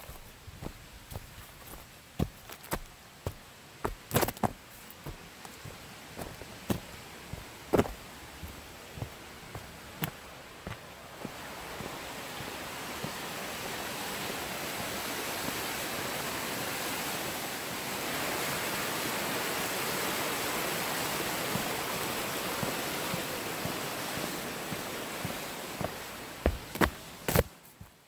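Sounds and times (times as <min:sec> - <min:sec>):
footsteps: 0:00.0 - 0:13.2, 0:21.5 - 0:28.0
creek water rushing: 0:00.0 - 0:28.0.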